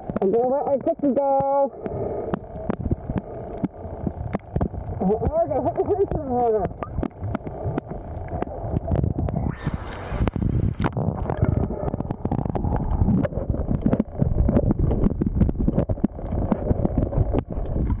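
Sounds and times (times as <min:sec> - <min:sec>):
small clicks and crackles: 0:00.0 - 0:18.0
underwater rumbling water: 0:00.0 - 0:18.0
rushing hiss: 0:09.6 - 0:10.9.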